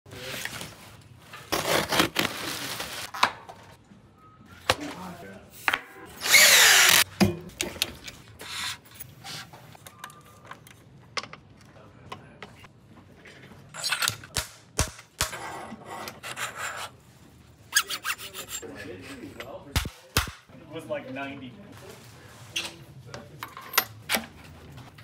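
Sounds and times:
cordless drill motor whine: 0:06.2 - 0:07.0.

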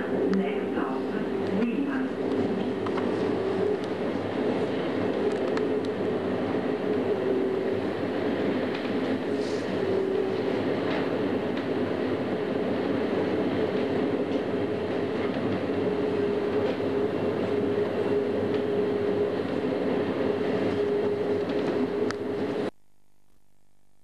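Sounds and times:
train wheels rumbling on rails: 0:00.0 - 0:22.7
steady whine: 0:00.0 - 0:24.0
faint hum: 0:15.7 - 0:24.0.

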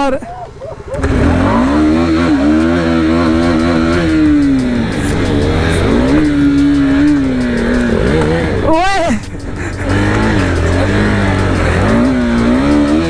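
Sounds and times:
motorcycle engine revving: 0:00.8 - 0:13.0.

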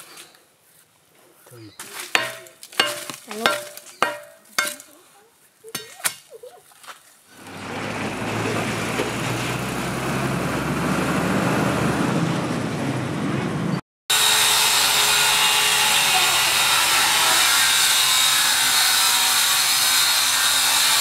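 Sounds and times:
metal bar knocking on stone: 0:02.1 - 0:04.9.

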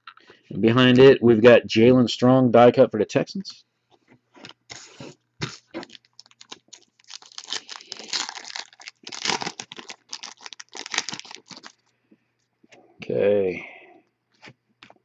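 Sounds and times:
foil wrapper tearing and crumpling: 0:05.4 - 0:11.9.

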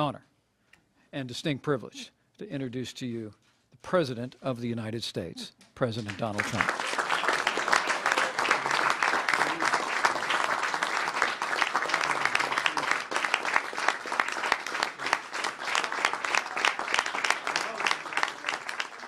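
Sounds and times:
people applauding: 0:06.0 - 0:19.0.

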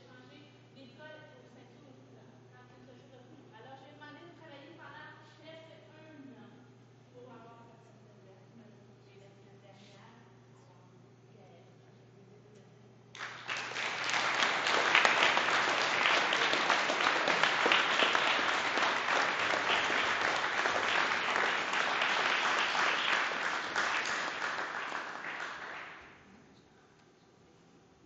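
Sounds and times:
students applauding: 0:13.2 - 0:26.2.

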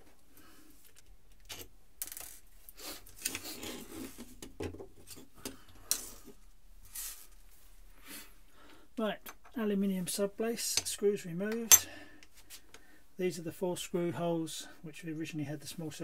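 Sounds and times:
rubbing and handling noise: 0:02.1 - 0:08.4.

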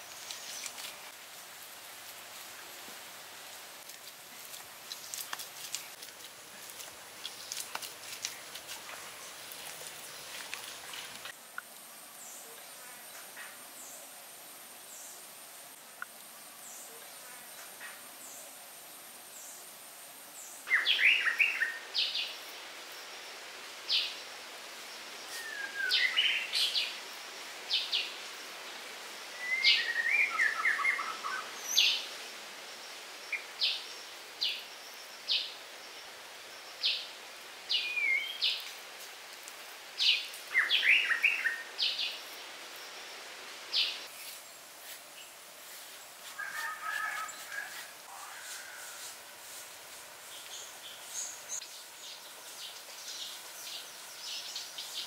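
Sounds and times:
faint outdoor hiss: 0:00.0 - 0:55.0
songbirds chirping: 0:00.0 - 0:55.0.

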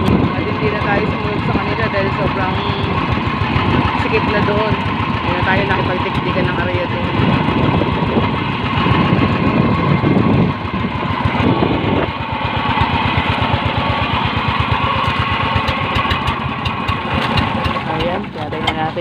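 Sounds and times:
boat engine puttering: 0:00.0 - 0:19.0
water rushing along hull: 0:00.0 - 0:19.0.

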